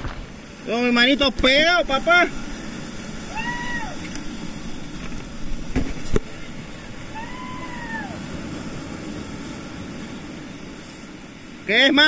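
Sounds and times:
surf washing over rocks: 0.0s - 12.0s
drawn-out rising and falling call: 2.3s - 5.0s, 6.3s - 8.9s.

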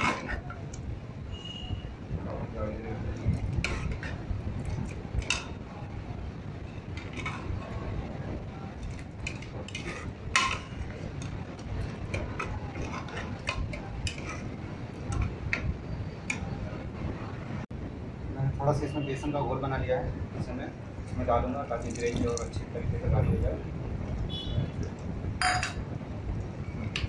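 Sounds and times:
ladle clinking and scraping pot: 0.0s - 0.8s, 3.2s - 5.6s, 6.8s - 7.9s, 8.8s - 16.6s.

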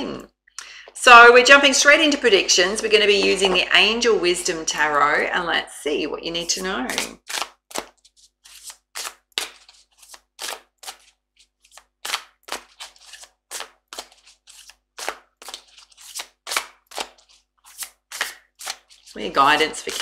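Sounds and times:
cards being shuffled: 6.9s - 20.0s.

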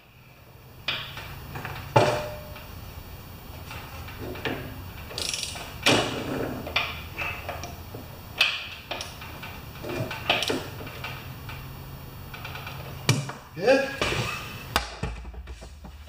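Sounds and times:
wrench clicking on bolts: 4.4s - 5.7s, 8.4s - 9.4s.

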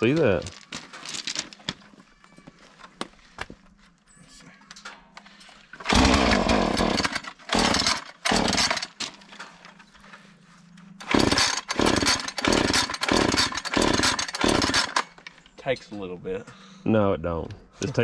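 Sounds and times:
chainsaw engine firing in bursts: 5.8s - 9.0s, 11.0s - 15.1s.

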